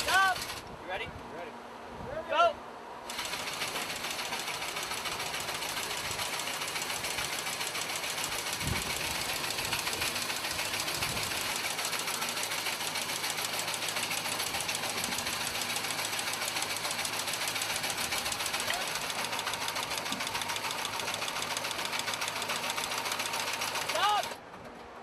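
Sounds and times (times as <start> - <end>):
machinery rattling: 0.0 - 0.7, 3.1 - 25.0.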